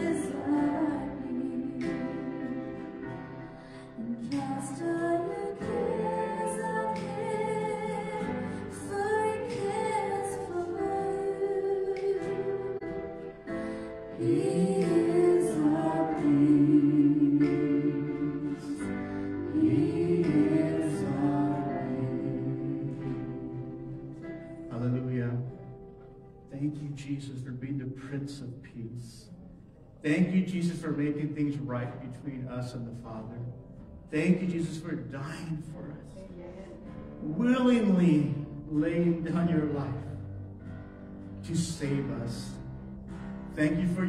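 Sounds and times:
women singing worship song: 0.0s - 24.7s
keyboard accompaniment: 0.0s - 44.0s.

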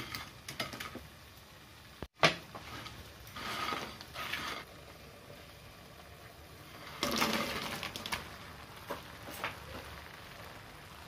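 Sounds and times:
clatter in a pan: 0.0s - 1.1s, 6.8s - 10.0s
food sizzling in a hot pan: 0.0s - 11.0s.

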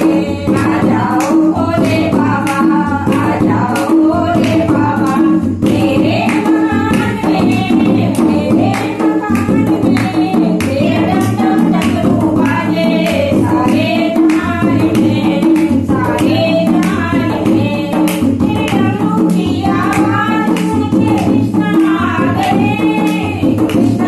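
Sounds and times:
hand-clapping steady beat: 0.0s - 24.0s
women singing devotional song: 0.0s - 24.0s.

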